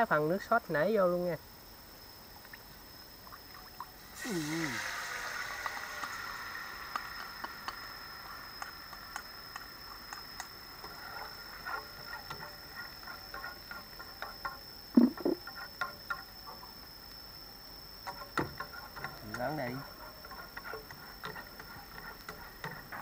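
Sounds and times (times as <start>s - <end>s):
sauce simmering in a frying pan: 2.4s - 23.0s.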